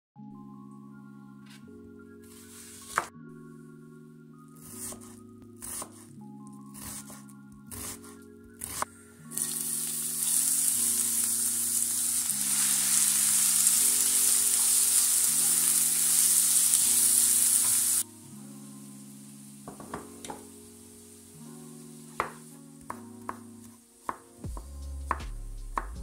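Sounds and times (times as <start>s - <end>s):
soft background music: 0.2s - 26.0s
knife chopping on wooden board: 4.7s - 6.0s, 22.2s - 23.5s
onions sizzling in oil: 9.4s - 18.0s, 18.6s - 22.6s.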